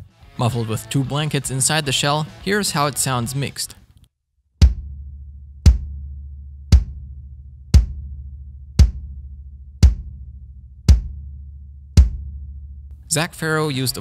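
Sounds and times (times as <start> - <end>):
bass drum kicks: 4.6 - 12.5.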